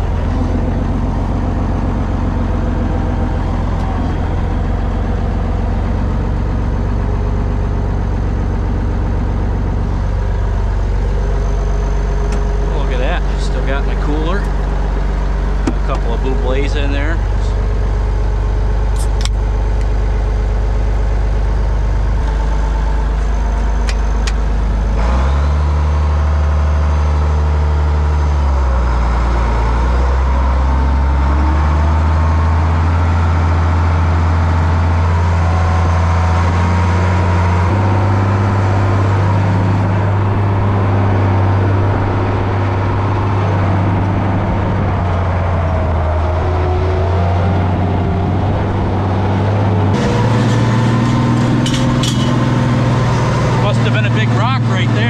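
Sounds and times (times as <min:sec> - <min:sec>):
tractor diesel engine revving: 0:00.0 - 0:55.0.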